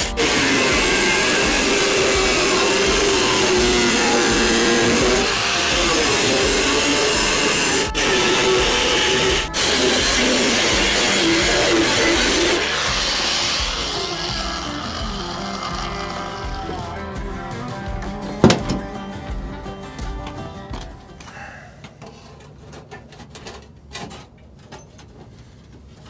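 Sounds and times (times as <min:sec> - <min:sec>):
angle grinder cutting sheet steel: 0:00.0 - 0:17.7.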